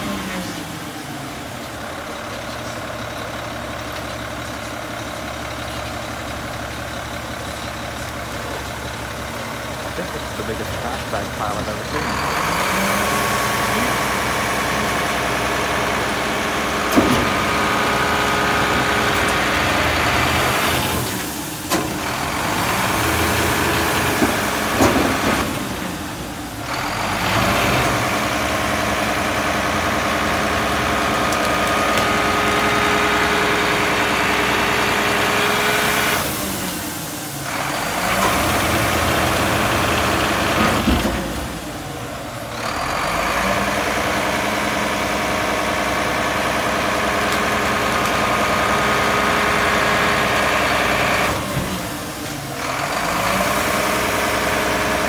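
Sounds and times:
diesel engine revving: 0.0 - 55.0.

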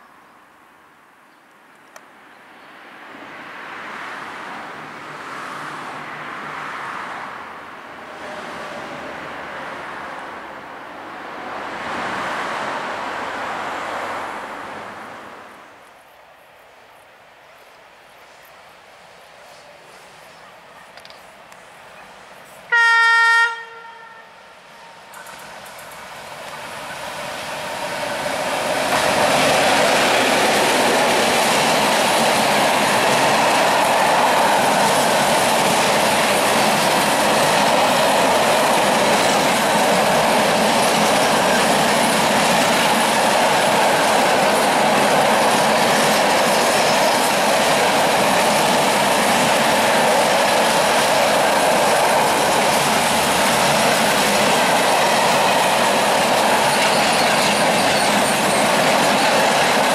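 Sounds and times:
freight train wheels on rails: 17.4 - 59.9.

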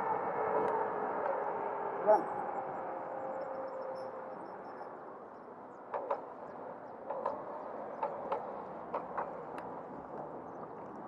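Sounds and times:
rush of wind and wheels: 0.0 - 11.0.

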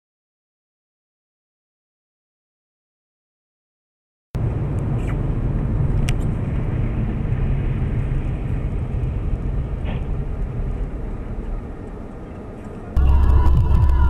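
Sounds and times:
car engine and tyres rumbling: 4.4 - 14.0.

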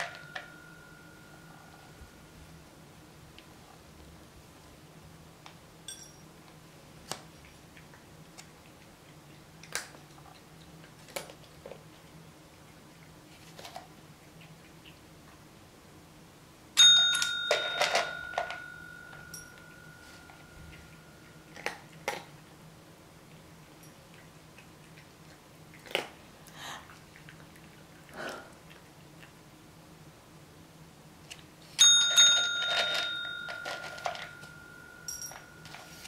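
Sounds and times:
desk call bell ringing: 0.0 - 2.0, 16.8 - 21.2, 31.8 - 36.0
kibble clattering into ceramic bowl: 32.1 - 35.9.

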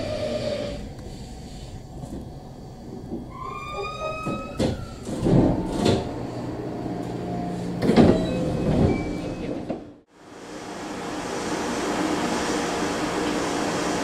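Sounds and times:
air hiss of train doors: 0.0 - 6.5, 10.2 - 14.0
electric train humming: 0.0 - 14.0
train squeal: 3.3 - 6.2, 7.4 - 9.7
sliding doors knocking: 7.8 - 9.9.

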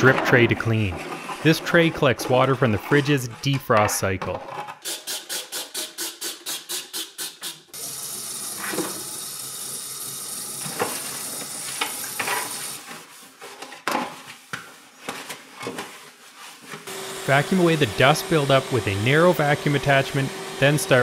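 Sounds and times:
faucet running water: 7.2 - 12.9, 16.9 - 21.0
soft wiping: 16.0 - 16.8.

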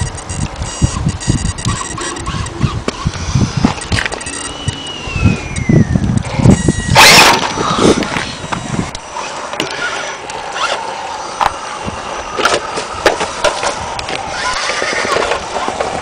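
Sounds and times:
scattered clicks: 0.0 - 6.7
rc car drivetrain whirring: 0.0 - 16.0
loud rushing scrape: 6.3 - 11.4.

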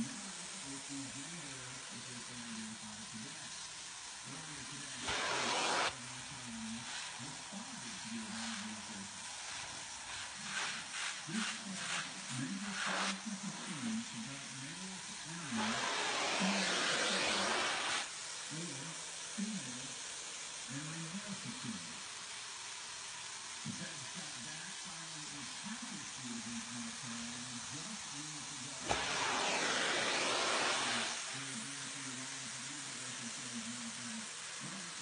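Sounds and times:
upholstery tool suction hiss: 0.0 - 21.3, 27.1 - 35.0.

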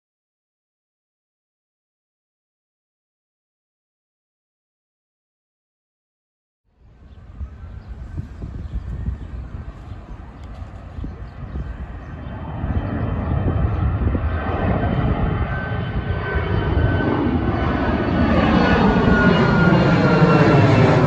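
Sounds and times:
jet engines roaring: 6.8 - 21.0.

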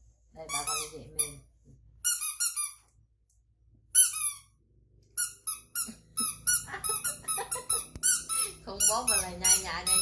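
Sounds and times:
squeeze toys squeaking: 2.0 - 2.9, 3.9 - 4.6, 5.2 - 10.0.

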